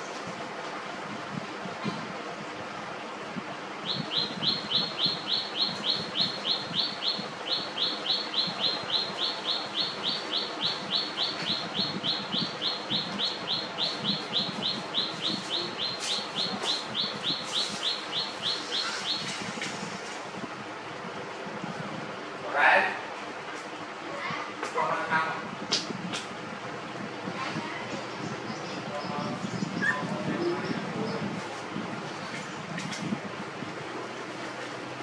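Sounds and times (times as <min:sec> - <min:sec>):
bird chirping: 0:03.8 - 0:19.6.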